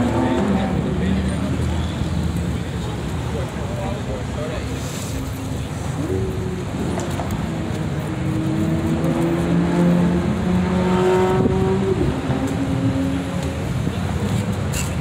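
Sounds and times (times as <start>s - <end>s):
car engine revving: 6.7s - 13.7s.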